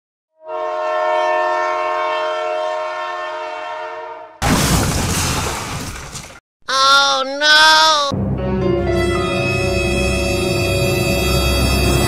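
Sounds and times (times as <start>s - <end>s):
train horn chord: 0.3s - 4.4s, 8.4s - 12.0s.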